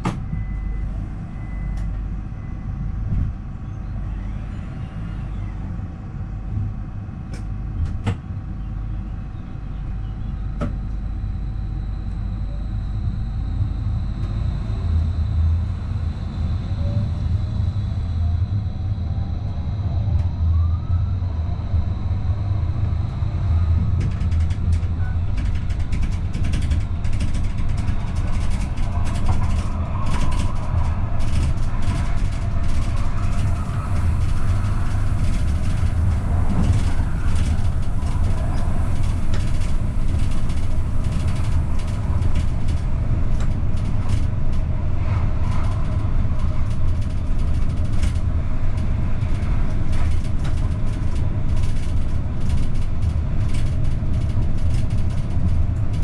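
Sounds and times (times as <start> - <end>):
faint whine: 0.0 - 7.8, 8.4 - 50.6
train wheels rumbling on rail: 0.0 - 56.0.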